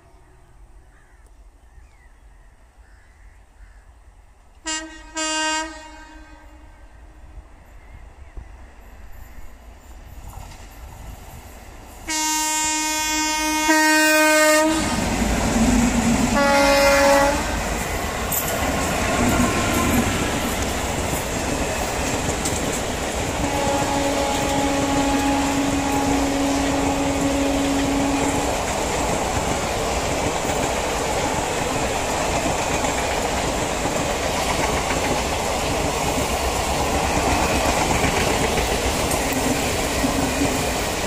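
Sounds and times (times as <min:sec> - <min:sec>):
rumble of train coaches: 0:00.0 - 0:02.8, 0:03.4 - 0:41.0
train horn blast: 0:04.6 - 0:07.4, 0:12.0 - 0:15.3, 0:16.2 - 0:17.8, 0:19.0 - 0:20.3, 0:23.4 - 0:28.8
wheels clacking over rail joints: 0:14.9 - 0:41.0.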